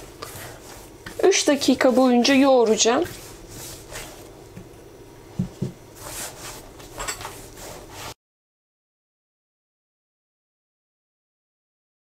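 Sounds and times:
dough being kneaded by hand: 0.0s - 8.2s.

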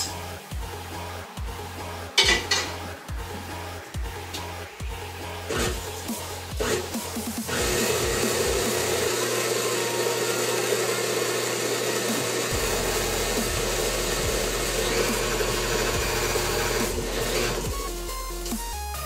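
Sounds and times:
stand mixer motor whirring: 6.6s - 17.8s.

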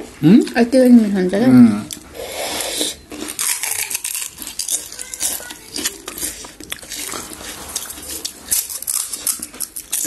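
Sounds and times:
spoons and dishes clinking: 3.2s - 10.0s.

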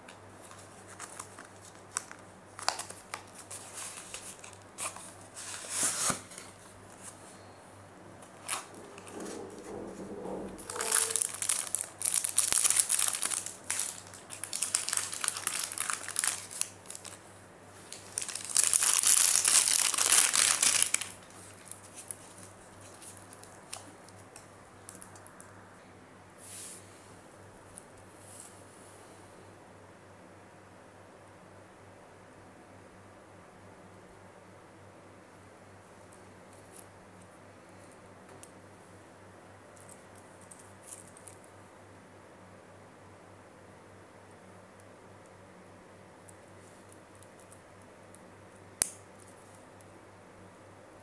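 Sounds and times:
plastic packaging crinkling: 0.4s - 7.1s, 8.2s - 9.7s, 10.6s - 17.2s, 17.8s - 25.5s.

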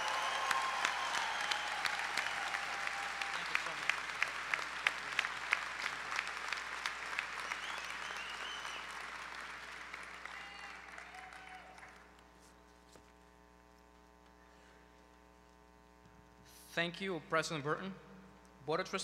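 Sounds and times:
audience applauding: 0.0s - 12.3s
faint electrical hum: 0.0s - 19.0s.

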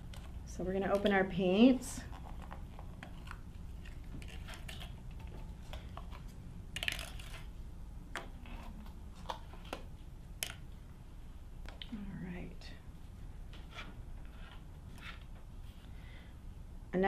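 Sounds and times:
faint low hum: 0.0s - 17.0s
plastic cups clicking and tapping: 6.8s - 7.5s, 8.1s - 10.6s.

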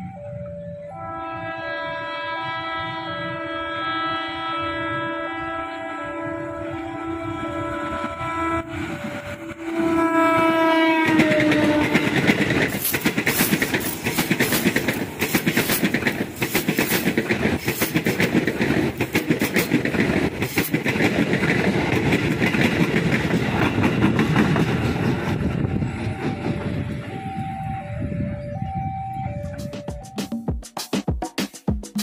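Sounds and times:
train horn: 0.0s - 12.4s
wheels clattering over rail joints: 11.0s - 26.8s.

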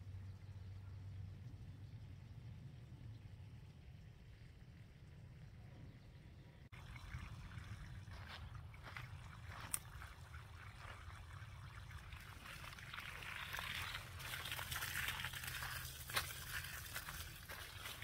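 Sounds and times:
hose water splashing on soil: 6.7s - 18.0s.

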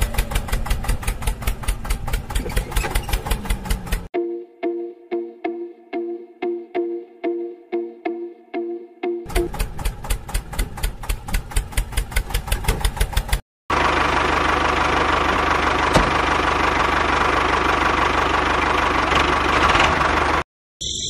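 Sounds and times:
toy tractor engine knocking: 0.0s - 4.1s, 9.3s - 13.9s.

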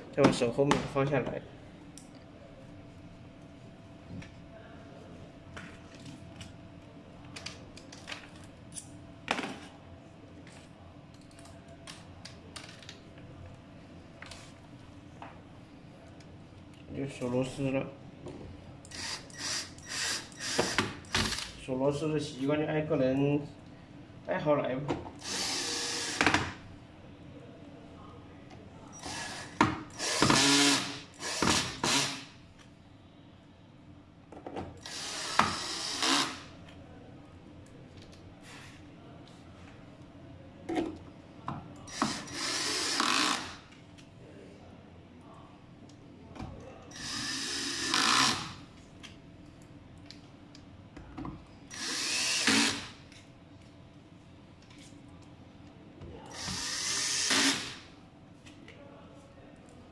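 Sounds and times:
cordless drill driving screws: 18.9s - 21.4s, 25.2s - 26.2s, 29.0s - 32.2s, 34.8s - 36.5s, 41.9s - 43.6s, 51.7s - 52.9s, 56.3s - 57.8s.

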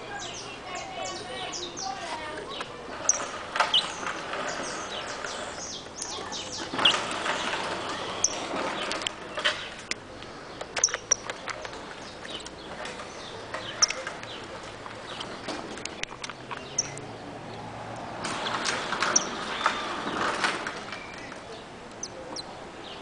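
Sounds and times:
finch chirping: 0.1s - 9.9s, 10.5s - 17.0s, 18.4s - 19.9s, 22.0s - 23.0s
sharp clicks: 9.8s - 17.1s.

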